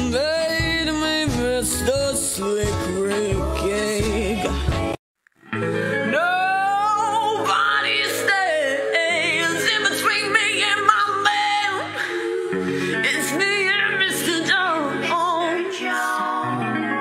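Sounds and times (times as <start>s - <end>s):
woman singing with vibrato: 5.8s - 17.0s.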